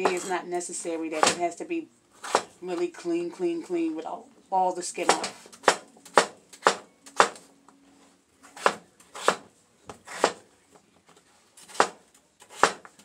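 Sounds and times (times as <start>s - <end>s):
knife chopping on cutting board: 2.2s - 2.5s, 8.6s - 10.4s, 11.7s - 13.0s.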